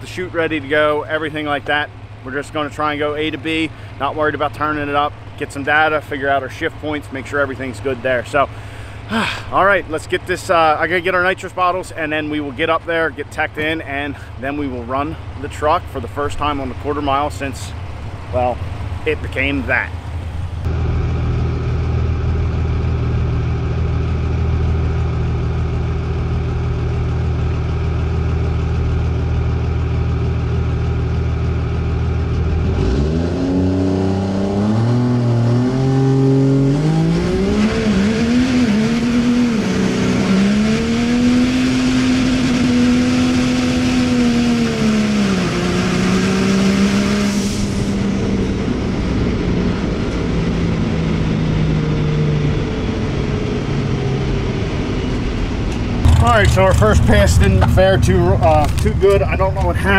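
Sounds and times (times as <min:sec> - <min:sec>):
diesel truck engine revving: 0:00.0 - 0:59.9
loud rushing noise: 0:46.4 - 0:50.9, 0:55.9 - 0:59.9.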